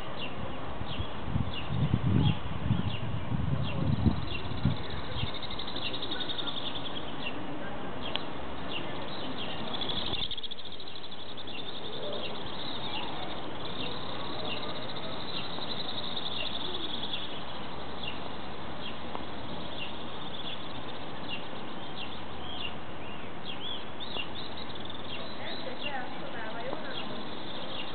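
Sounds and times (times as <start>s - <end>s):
birds chirping and trilling: 0.0s - 7.4s, 8.0s - 27.9s.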